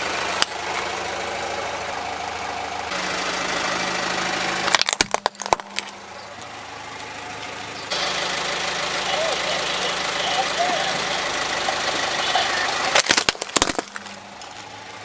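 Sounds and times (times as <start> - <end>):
car engine idling: 0.0 - 15.0
plastic toy cracking under tyre: 4.7 - 6.0, 12.9 - 14.7.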